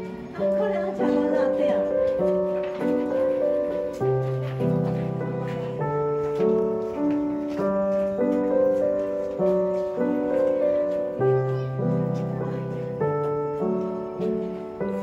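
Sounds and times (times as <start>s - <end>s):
gentle piano piece: 0.0s - 15.0s.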